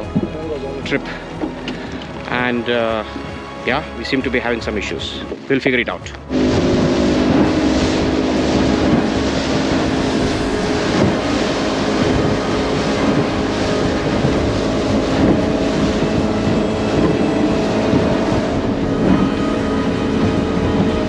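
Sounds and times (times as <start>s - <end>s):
motorboat engine drone: 0.0s - 21.0s
rushing water and spray: 0.0s - 21.0s
wind on microphone: 5.0s - 21.0s.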